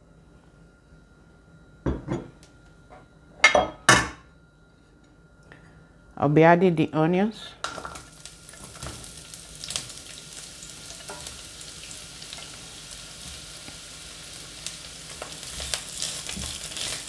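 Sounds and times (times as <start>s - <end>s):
onions sizzling in hot oil: 7.8s - 17.0s.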